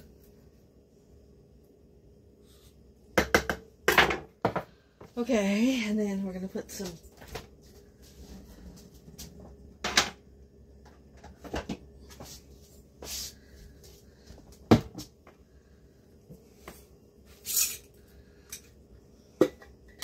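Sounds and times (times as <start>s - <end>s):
kitchen clatter knocks and clicks: 3.2s - 4.7s.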